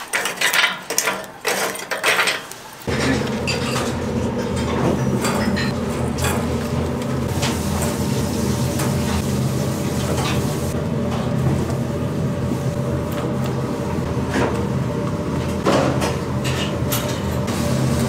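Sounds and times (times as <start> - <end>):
utensils clattering: 0.0 - 8.0, 10.0 - 10.8, 15.7 - 17.5
low machine hum: 2.9 - 18.0.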